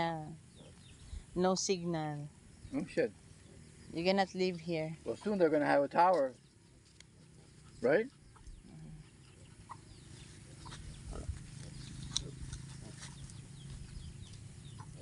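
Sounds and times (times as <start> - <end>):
pigs grunting: 7.1 - 15.0.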